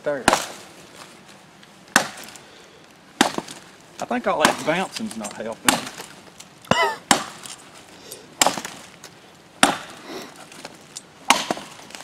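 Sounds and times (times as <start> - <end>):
machete chopping into log: 0.2 - 0.6, 1.9 - 2.4, 3.2 - 3.6, 4.4 - 4.8, 5.6 - 6.1, 6.7 - 7.6, 8.4 - 8.8, 9.6 - 10.0, 11.2 - 12.0.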